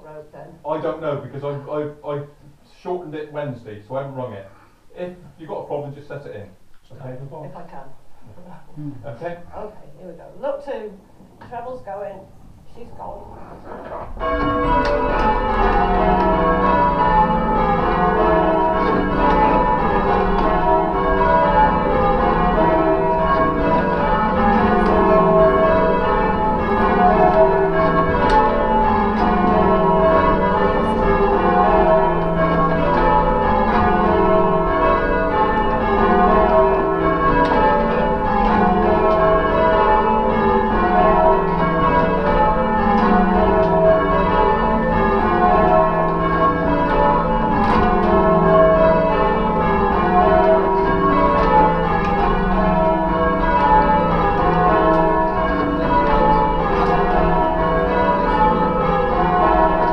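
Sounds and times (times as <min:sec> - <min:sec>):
church bells change ringing: 0:14.0 - 0:59.9.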